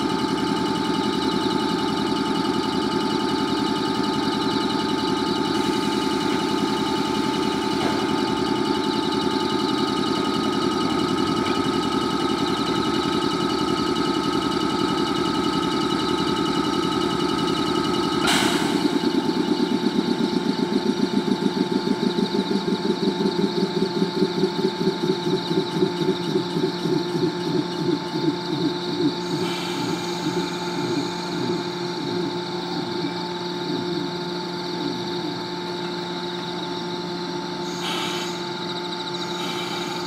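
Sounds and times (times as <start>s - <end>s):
air compressor throbbing: 0.0s - 40.0s
electric train humming and whining: 0.0s - 40.0s
air hiss: 37.8s - 38.5s.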